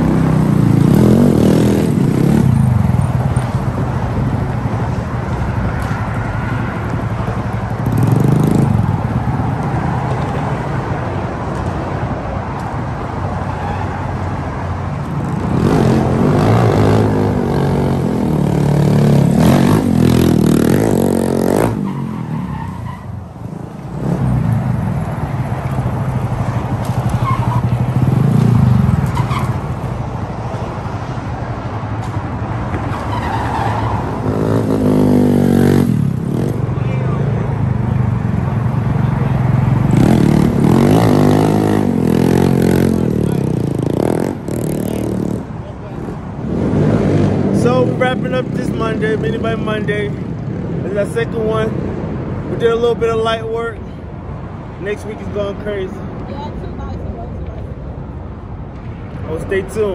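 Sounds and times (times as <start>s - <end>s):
mini bike engines revving: 38.6s - 49.8s.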